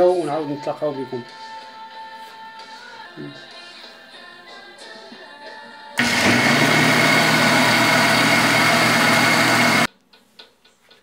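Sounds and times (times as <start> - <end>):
faint background music: 0.0 - 6.0
blender motor running: 6.0 - 9.9.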